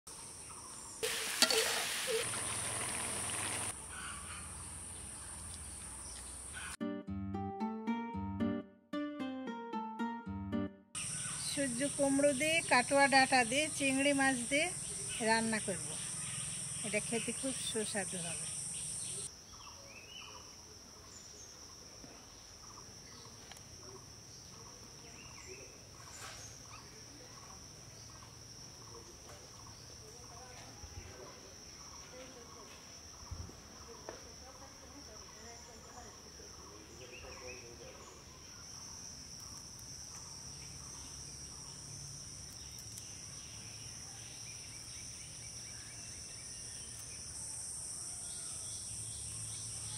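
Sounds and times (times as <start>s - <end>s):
high insect drone: 11.0s - 49.9s.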